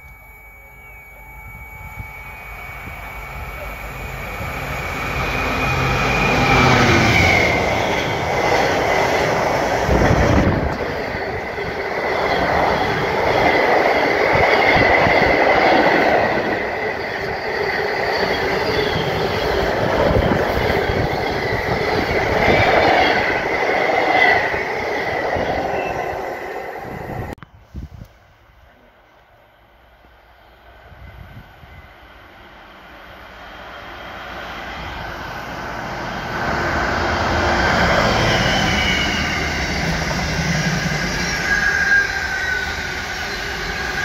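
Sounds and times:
high squeal: 0.0s - 27.4s, 32.9s - 44.0s
locomotive engine: 0.0s - 27.4s.

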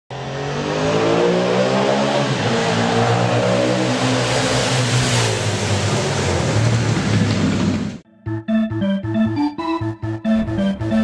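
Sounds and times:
engine revving: 0.1s - 8.0s.

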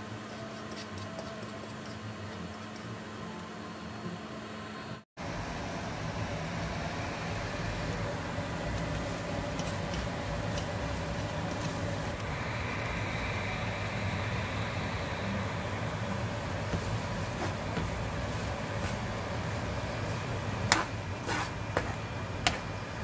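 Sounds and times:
food sizzling in frying pans: 5.6s - 23.0s.

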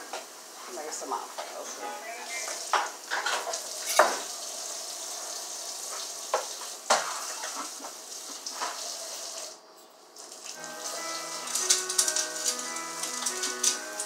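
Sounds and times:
steady hiss: 0.0s - 14.0s
kitchenware clinking: 1.3s - 4.3s, 6.3s - 8.0s.

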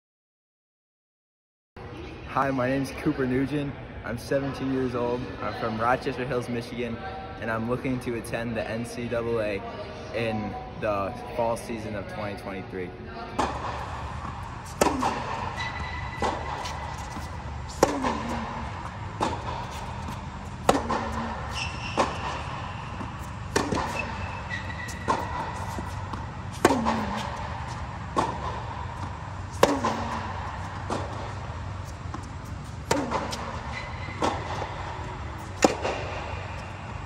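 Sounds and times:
tennis ball struck by rackets: 13.4s - 36.9s
steady low hum: 13.4s - 37.0s.

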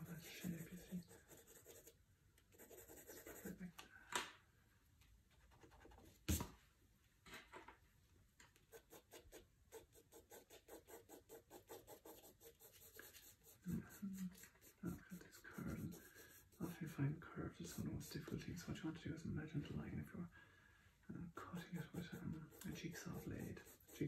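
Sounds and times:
pencil scratching on paper: 0.0s - 3.7s, 8.7s - 18.4s, 21.5s - 24.0s.

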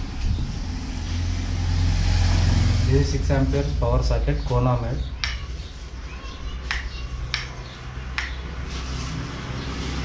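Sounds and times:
low steady rumble: 0.0s - 5.3s.

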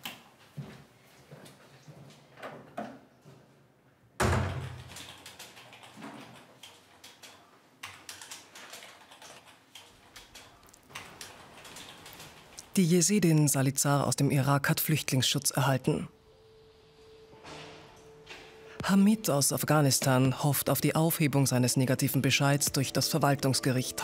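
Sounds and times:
typing on a keyboard: 4.6s - 12.7s
door shutting: 17.2s - 18.9s.

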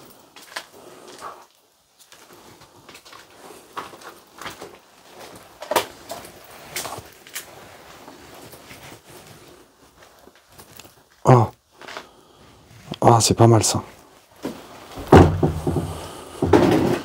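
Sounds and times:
footsteps with sharp knocks: 14.4s - 17.0s.

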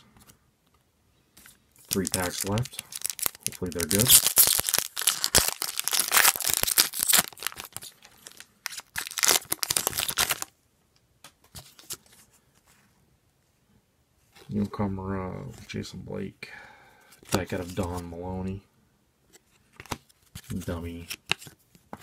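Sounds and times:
foil wrapper tearing and crinkling: 1.9s - 10.5s.

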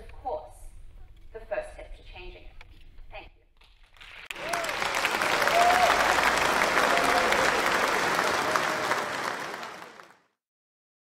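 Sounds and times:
audience applauding: 4.0s - 10.2s.

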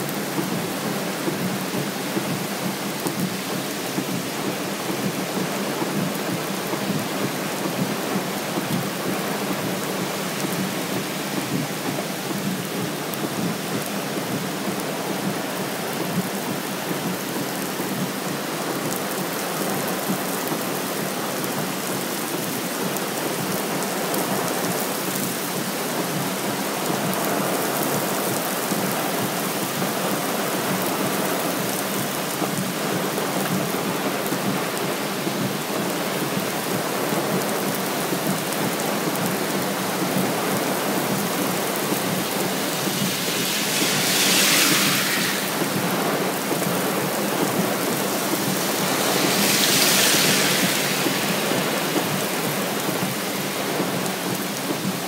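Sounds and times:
car tyres hissing on wet road: 0.0s - 55.0s
heavy rain: 0.0s - 55.0s
flooded river rushing: 35.1s - 55.0s.

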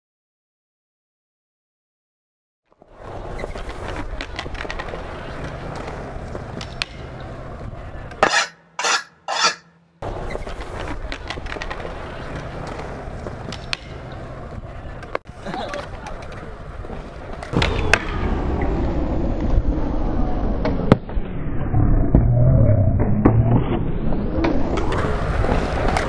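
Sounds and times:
skateboard wheels rolling on concrete: 2.7s - 21.3s, 23.0s - 26.0s.

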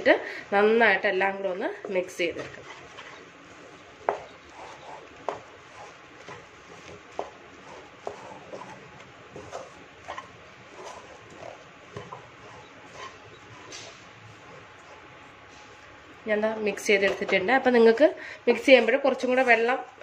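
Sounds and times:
spatula scraping and knocking a pan: 1.8s - 15.7s.

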